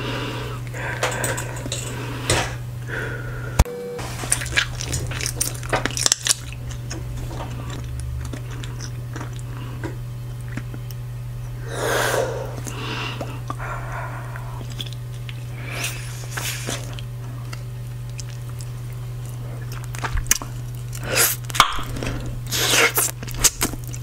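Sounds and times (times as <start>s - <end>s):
low hum: 0.0s - 24.0s
wet gum chewing: 4.3s - 11.0s, 12.3s - 24.0s
breathy blow: 11.6s - 14.6s.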